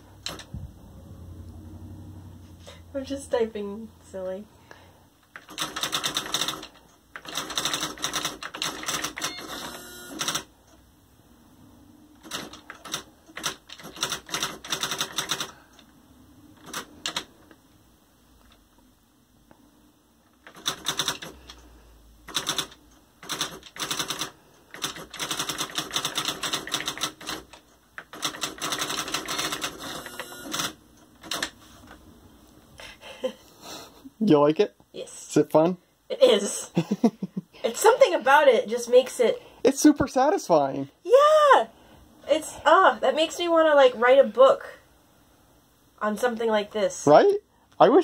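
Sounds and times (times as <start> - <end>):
electronic typewriter clattering: 0.2 - 0.5, 5.3 - 10.5, 12.2 - 15.6, 16.6 - 17.3, 20.3 - 21.6, 22.3 - 31.6.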